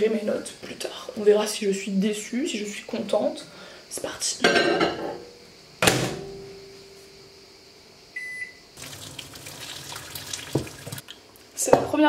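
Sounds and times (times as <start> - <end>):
water running from tap: 8.8 - 11.2.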